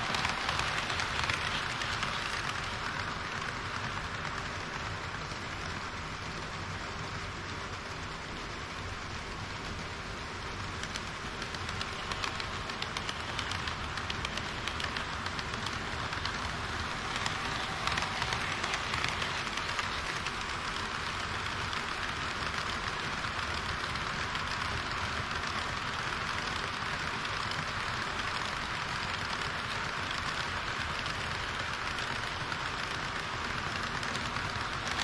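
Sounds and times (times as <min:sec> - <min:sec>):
model train wheels clattering on rails: 0:00.0 - 0:35.0.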